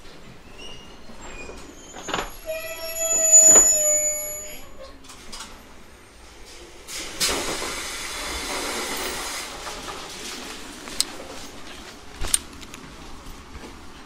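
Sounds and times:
train clunk with squeal: 0.3s - 5.5s
compressed air hiss: 6.9s - 9.6s.

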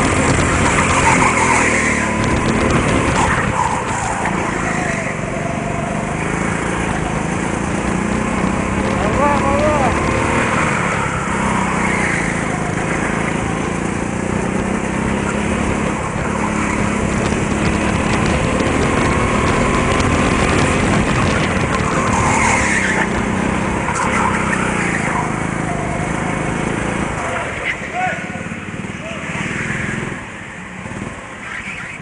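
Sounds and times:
go-kart engine running: 0.0s - 32.0s.

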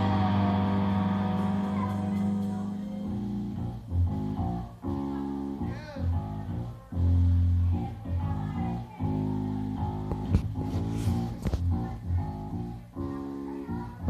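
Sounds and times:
electric guitar: 0.0s - 6.7s
bass guitar: 0.0s - 14.0s.

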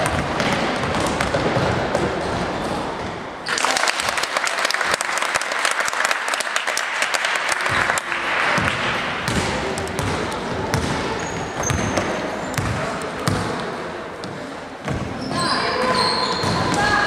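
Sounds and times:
crowd noise: 0.0s - 17.0s
spectators clapping: 3.4s - 9.2s.

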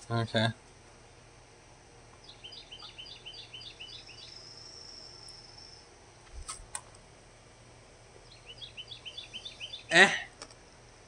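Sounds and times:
thin high buzz: 2.2s - 6.8s.

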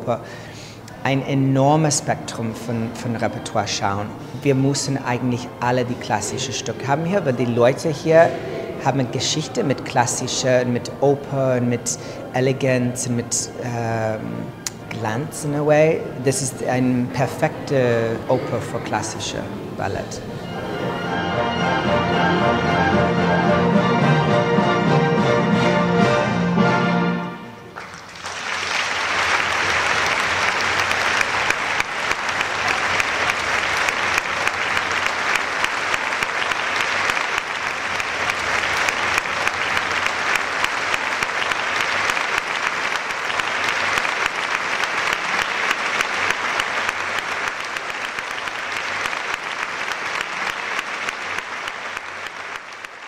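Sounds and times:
audience applauding: 27.7s - 53.0s.

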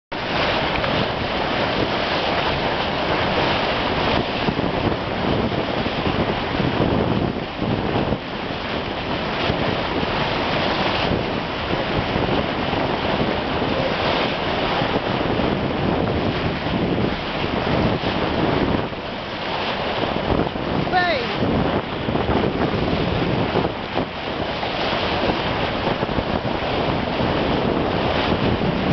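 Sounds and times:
water rushing along boat hull: 0.1s - 28.9s
wind buffeting microphone: 0.2s - 28.9s.

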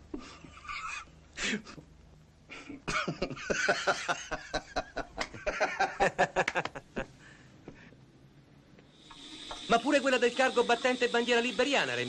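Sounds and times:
man laughing: 2.5s - 7.1s.

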